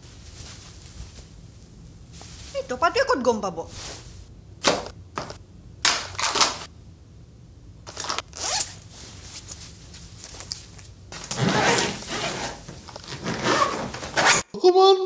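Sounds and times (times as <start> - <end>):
clothes rustling swishes: 0.0 - 2.8, 3.6 - 5.4, 8.4 - 14.4.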